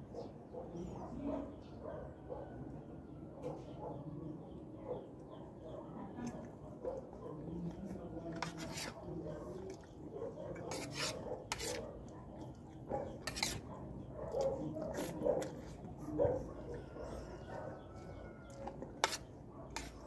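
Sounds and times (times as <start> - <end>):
spoon scraping on a plate: 7.9 - 9.8, 10.5 - 13.9, 14.6 - 16.0, 18.0 - 20.0.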